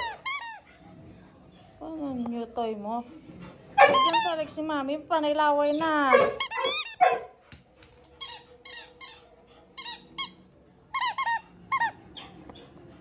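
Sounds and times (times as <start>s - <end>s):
squeaky toy ball squeaking: 0.0s - 0.6s, 3.8s - 4.4s, 5.7s - 7.1s, 8.2s - 9.2s, 9.8s - 12.4s.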